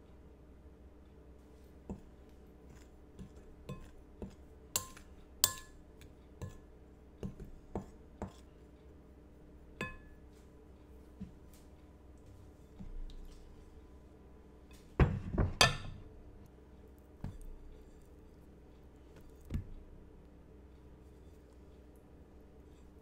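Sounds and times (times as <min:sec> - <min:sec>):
utensil clinking in glass bowl: 0:03.2 - 0:05.8.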